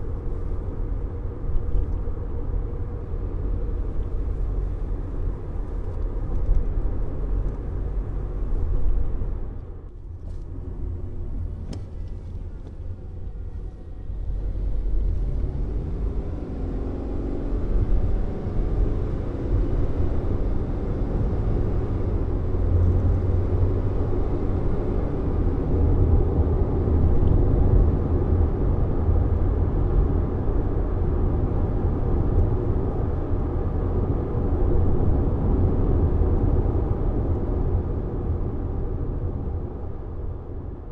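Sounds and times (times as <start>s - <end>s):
road and tyre noise in car cabin: 0.0s - 40.9s.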